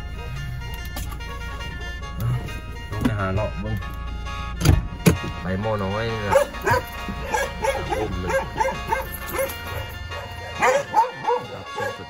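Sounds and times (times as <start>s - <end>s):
background music: 0.0s - 12.0s
dog yipping: 6.3s - 12.0s.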